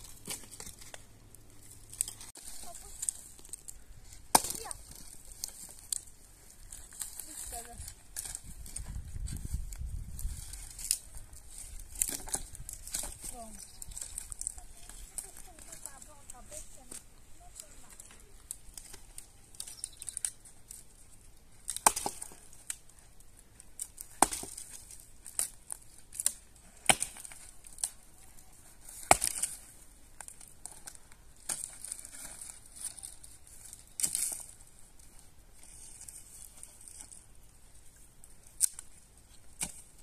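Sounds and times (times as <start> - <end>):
brushwood rustling and crackling: 0.0 - 40.0
firewood cracking: 0.0 - 40.0.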